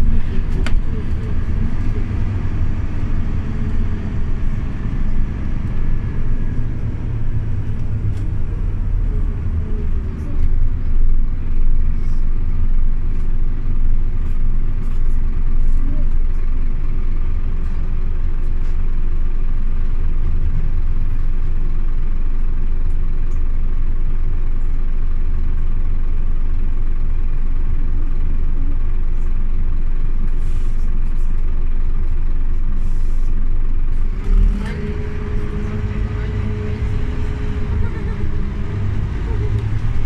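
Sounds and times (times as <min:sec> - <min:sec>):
steady whine: 0:00.0 - 0:13.3, 0:34.1 - 0:40.0
bus engine and road rumble: 0:00.0 - 0:40.0.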